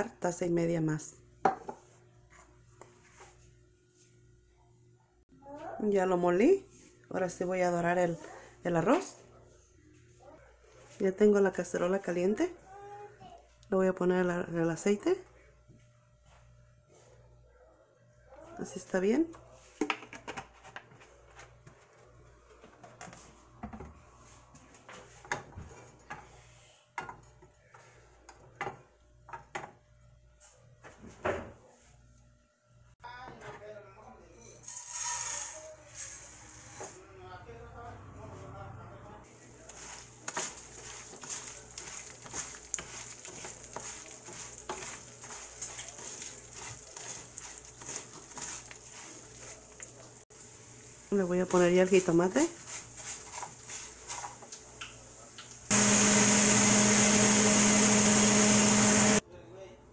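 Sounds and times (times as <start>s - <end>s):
light sizzle of oil: 39.3s - 55.7s
spatula scraping rice in pan: 39.6s - 50.1s, 52.5s - 54.5s.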